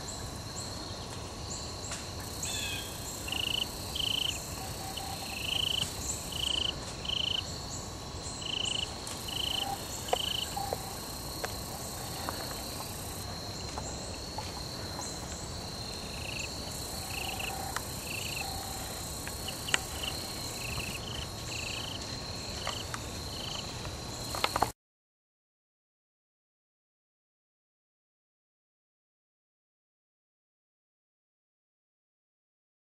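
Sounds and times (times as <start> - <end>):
insects trilling: 0.0 - 24.7
insect short high chirps: 2.4 - 7.5, 8.3 - 11.2.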